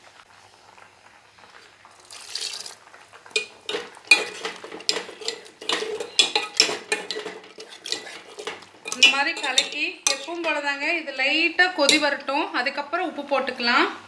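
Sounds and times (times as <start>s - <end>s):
spoon clinking and scraping pot: 3.3s - 10.6s, 11.7s - 12.3s.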